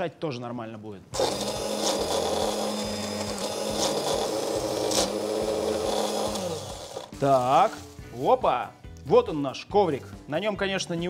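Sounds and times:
hand blender chopping: 1.2 - 7.6.

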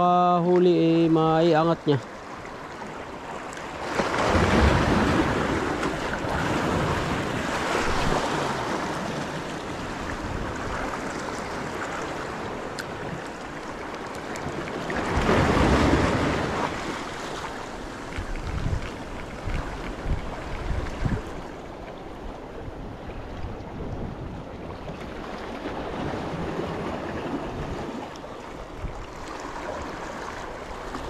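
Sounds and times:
waves washing against rocks: 3.2 - 21.6
wind buffeting microphone: 17.6 - 21.6, 22.2 - 29.2.

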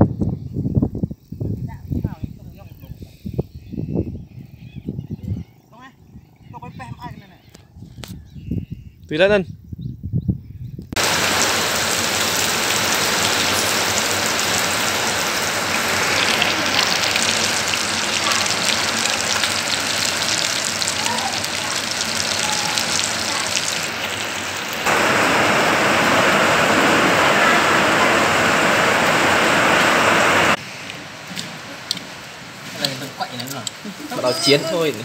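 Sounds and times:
fish sizzling in hot oil: 11.0 - 25.0.

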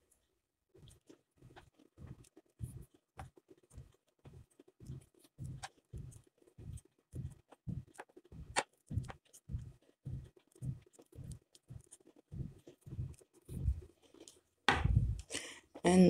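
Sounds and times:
wooden knitting needles clicking: 0.8 - 16.0.

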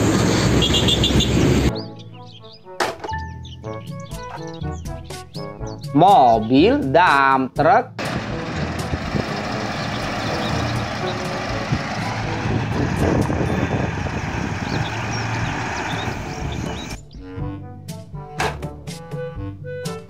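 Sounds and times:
diesel truck engine running: 0.0 - 1.7, 8.0 - 17.0.

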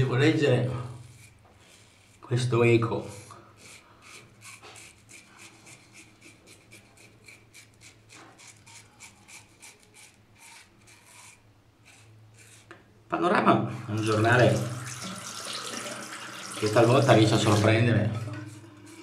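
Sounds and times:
razor scraping stubble: 1.0 - 12.8.

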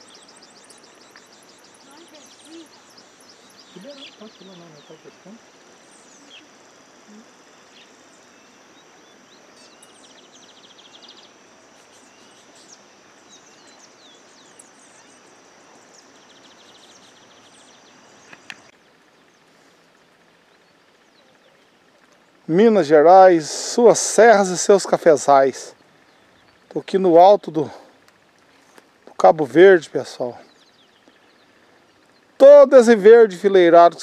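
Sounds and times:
bird chirps: 0.0 - 22.6, 30.2 - 32.6
buzzy bird trills: 0.0 - 34.0
high-pitched whine and hiss: 0.0 - 34.0.

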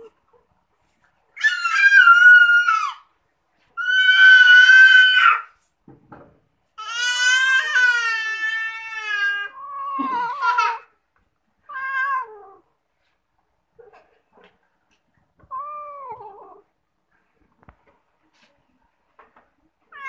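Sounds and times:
cat meowing: 11.7 - 12.6, 15.5 - 16.7.

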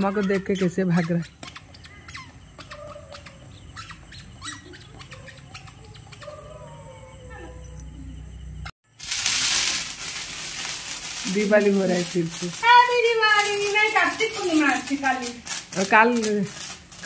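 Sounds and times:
frogs croaking: 0.0 - 8.7
sparkler hissing: 8.9 - 17.0.

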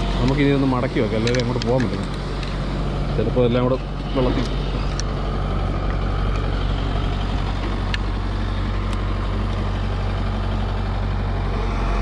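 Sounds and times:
diesel engine idling: 0.0 - 12.0.

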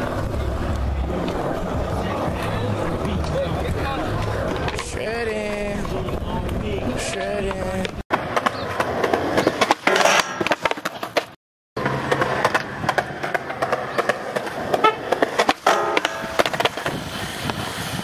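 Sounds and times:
skateboard wheels rolling on concrete: 0.0 - 18.0
skateboard clacks and knocks: 5.7 - 17.0.

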